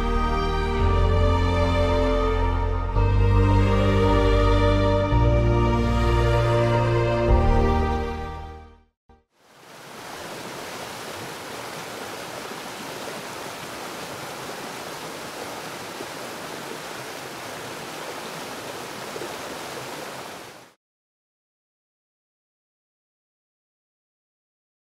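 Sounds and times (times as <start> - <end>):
waterfall rushing: 9.5 - 20.8.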